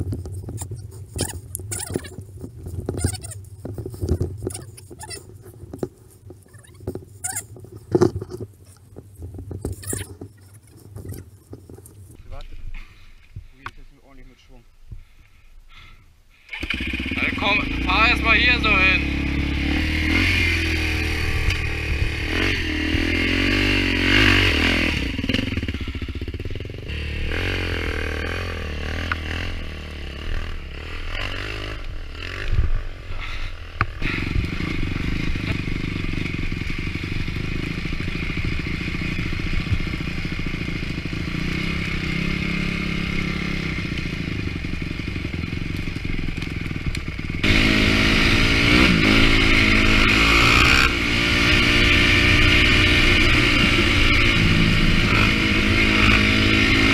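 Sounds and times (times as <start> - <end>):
clattering and scraping: 0.0 - 12.9
dirt bike engines revving: 0.0 - 14.5, 16.4 - 56.9.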